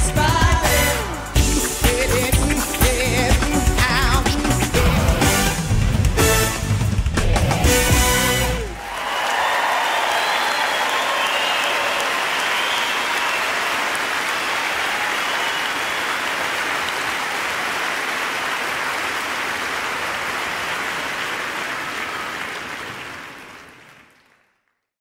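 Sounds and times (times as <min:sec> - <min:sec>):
crowd applause: 0:07.2 - 0:24.8.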